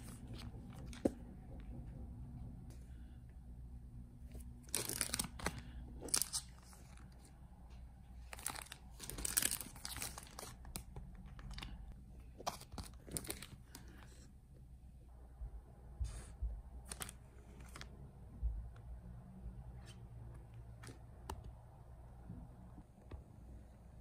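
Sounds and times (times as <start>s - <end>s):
plastic sleeves crinkling: 4.3s - 7.4s, 8.2s - 14.0s.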